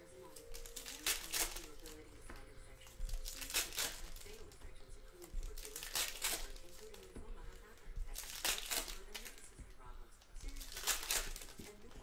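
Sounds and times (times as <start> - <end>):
foil wrapper crinkling and tearing: 0.3 - 2.1, 2.8 - 4.6, 5.5 - 7.1, 8.1 - 9.5, 10.4 - 12.0.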